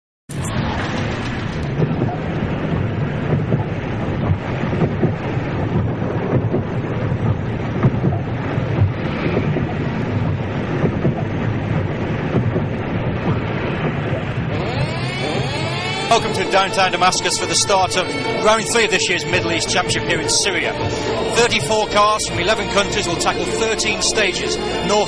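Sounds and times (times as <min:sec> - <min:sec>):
crowd hubbub: 0:12.1 - 0:25.0.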